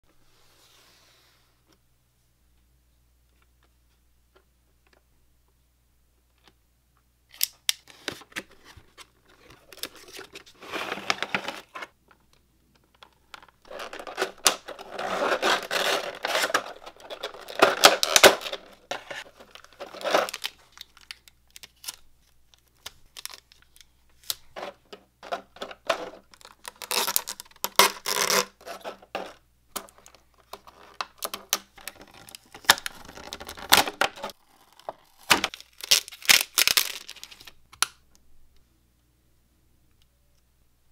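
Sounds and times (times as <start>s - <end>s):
plastic packaging crinkling: 8.0s - 11.9s, 12.9s - 37.6s.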